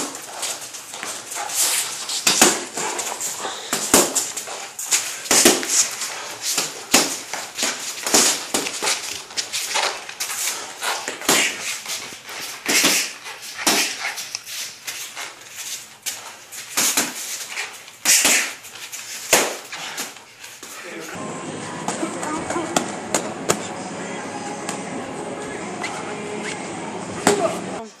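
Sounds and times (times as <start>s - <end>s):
hissing breaths: 2.9s - 3.9s.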